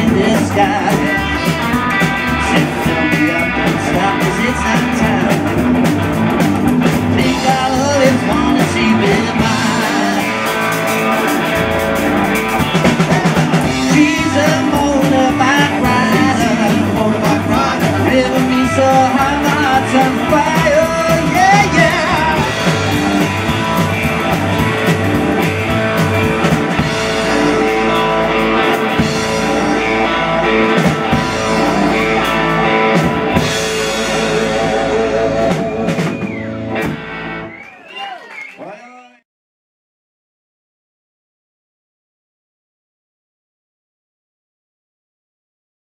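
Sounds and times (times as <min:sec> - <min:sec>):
person singing: 0:00.0 - 0:05.5, 0:07.0 - 0:10.7, 0:12.7 - 0:23.3, 0:31.1 - 0:36.2
rockabilly band playing: 0:00.0 - 0:38.5.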